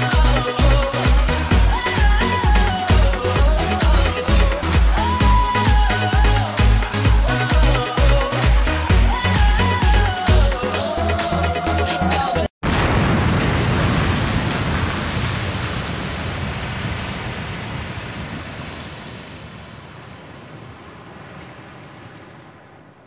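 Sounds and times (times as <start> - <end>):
dance music: 0.0 - 12.5
steady rushing noise: 13.3 - 23.0.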